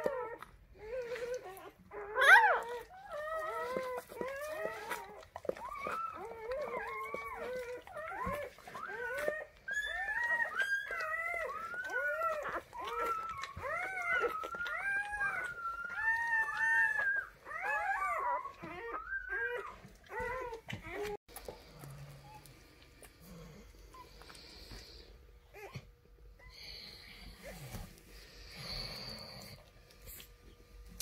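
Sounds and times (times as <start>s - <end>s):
puppy squealing cries: 1.1s - 21.2s.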